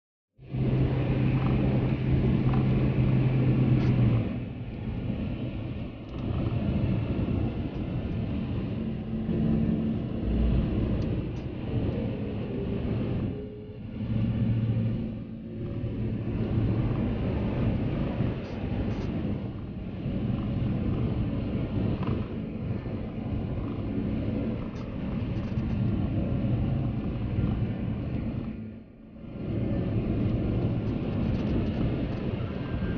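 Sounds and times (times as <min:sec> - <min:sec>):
car cabin road rumble: 0:00.5 - 0:32.9.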